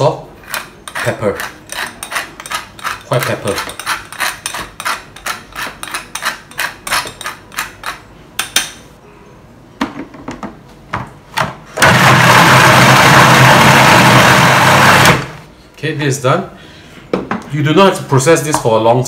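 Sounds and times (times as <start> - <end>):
food processor blending: 11.8 - 15.4.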